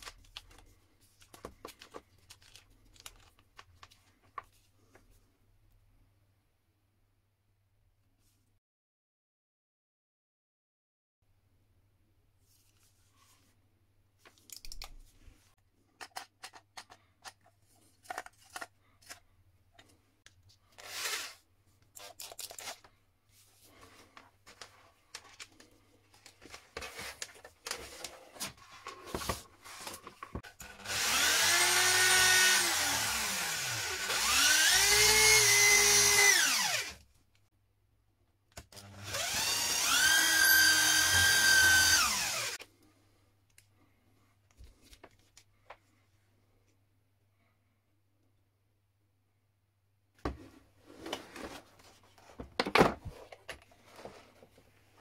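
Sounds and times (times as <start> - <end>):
electric drill motor whine: 30.6 - 37.0, 38.8 - 42.6.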